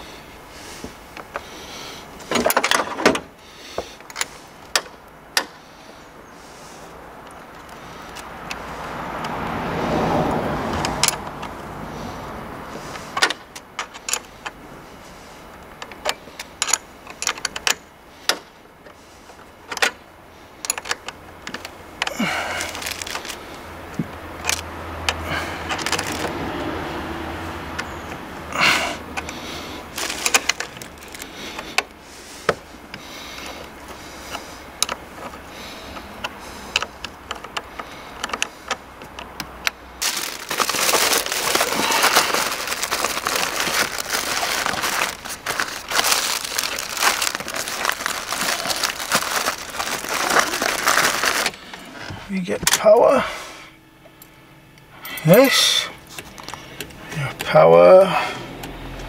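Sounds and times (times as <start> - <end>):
handling rustle: 12.7 - 26.6, 29.0 - 39.4, 40.0 - 53.0.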